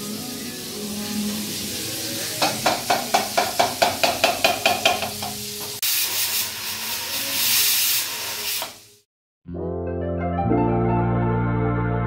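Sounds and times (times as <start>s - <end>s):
pressure cooker steam hissing: 0.0s - 9.1s.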